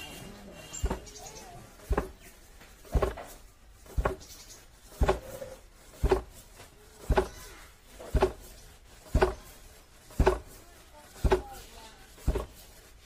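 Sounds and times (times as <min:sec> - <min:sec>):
wooden pestle thudding: 0:00.8 - 0:13.0.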